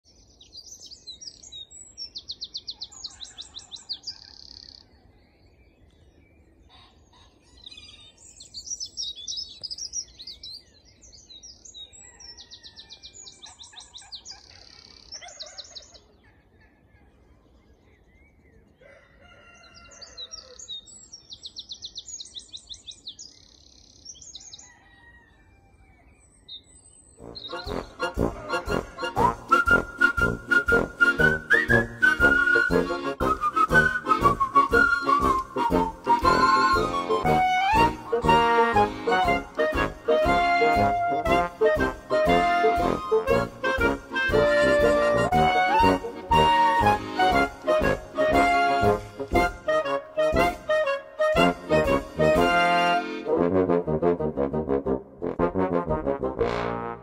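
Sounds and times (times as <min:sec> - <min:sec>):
bird trilled song: 0:07.5 - 0:16.2, 0:20.1 - 0:24.8.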